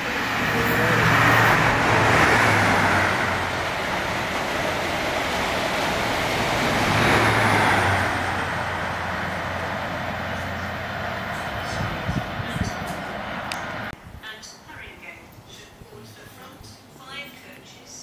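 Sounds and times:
train wheels and air rushing: 0:00.0 - 0:14.0
low train engine hum: 0:00.0 - 0:17.5.

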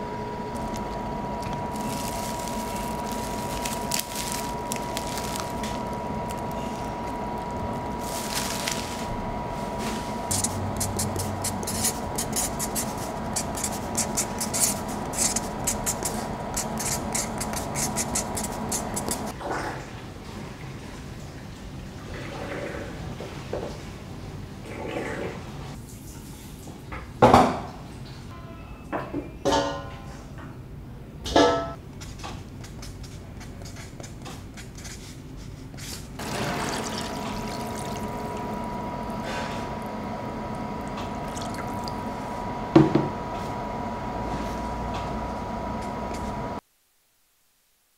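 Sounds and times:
steady hum: 0:00.0 - 0:19.4, 0:36.2 - 0:47.8
rapid scraping strokes: 0:08.0 - 0:19.3
water pouring: 0:36.2 - 0:39.9, 0:40.8 - 0:42.2.

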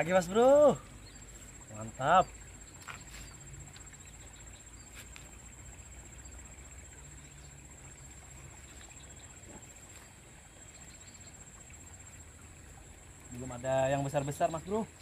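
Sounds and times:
insects trilling: 0:00.0 - 0:15.0.

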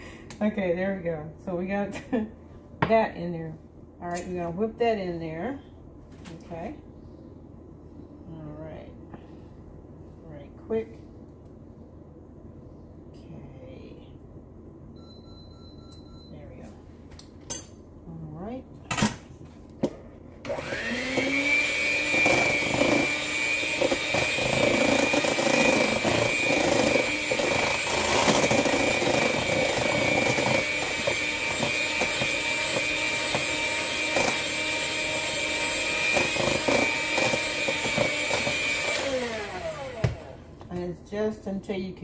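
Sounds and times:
electric hand mixer whining: 0:20.5 - 0:40.4.

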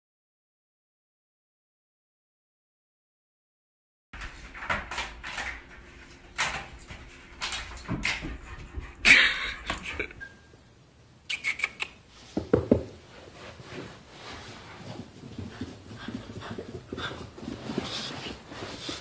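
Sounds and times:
knocks and scuffles: 0:12.2 - 0:19.0.

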